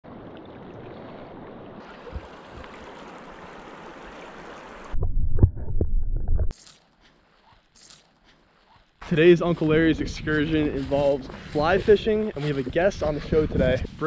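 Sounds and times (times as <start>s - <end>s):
stream rushing: 0.1s - 5.0s.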